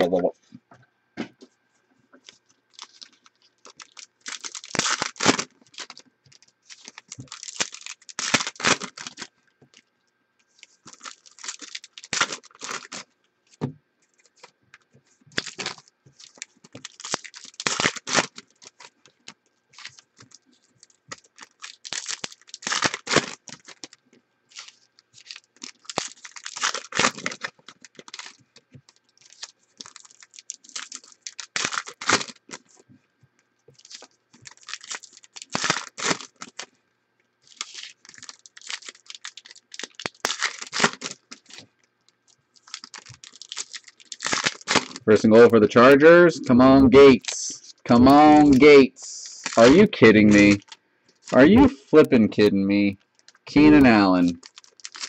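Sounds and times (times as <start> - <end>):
foil wrappers tearing and crinkling: 2.2 - 9.8, 10.5 - 32.8, 33.8 - 36.8, 37.4 - 46.0, 46.9 - 52.1, 53.1 - 55.0
cards being handled: 46.3 - 55.0.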